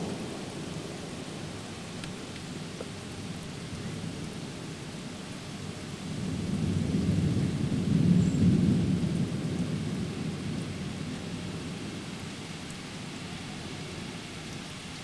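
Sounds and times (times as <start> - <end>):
steady rain: 0.0 - 15.0
thunder rumbling: 6.0 - 14.2.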